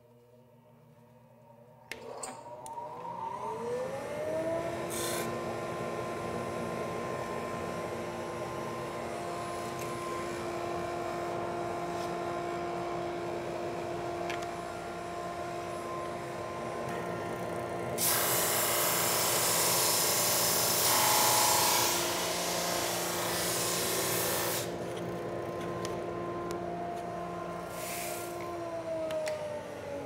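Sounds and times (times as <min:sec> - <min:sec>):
drum sander whine: 0:02.4 - 0:30.0.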